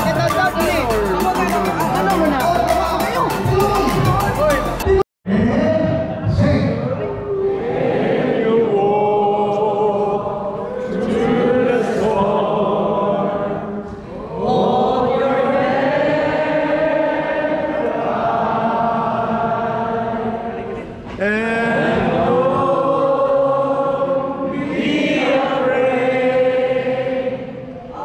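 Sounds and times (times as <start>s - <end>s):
group singing without accompaniment: 0.0s - 5.0s, 7.4s - 28.0s.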